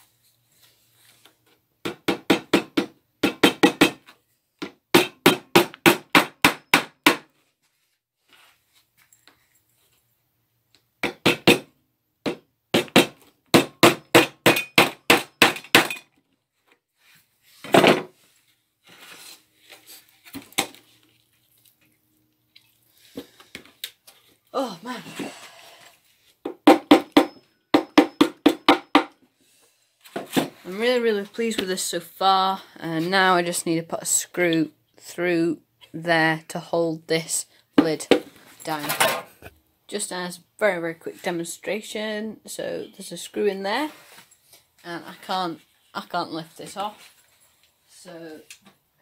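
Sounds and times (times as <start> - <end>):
hammer driving nails into wood: 1.8 - 7.3, 11.0 - 16.0.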